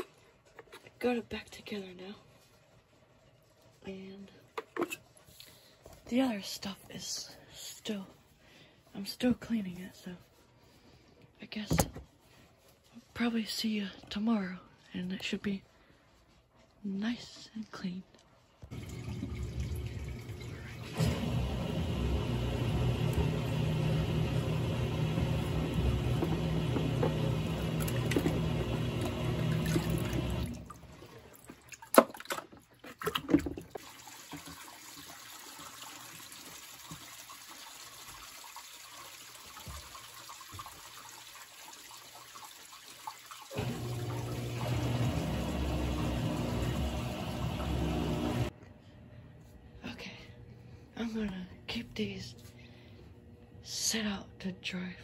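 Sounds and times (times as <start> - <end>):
water running in a sink: 18.6 - 32.2, 33.1 - 48.5.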